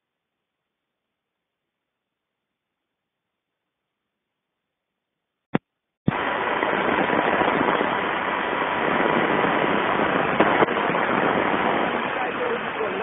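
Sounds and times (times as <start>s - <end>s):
radio static hiss: 6.1s - 13.0s.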